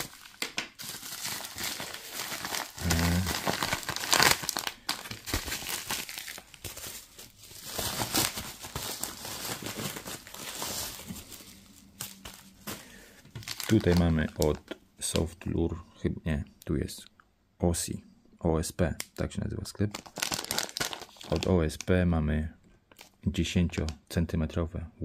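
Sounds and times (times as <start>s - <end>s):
packaging crinkling and tearing: 0.0s - 15.2s, 19.9s - 21.9s.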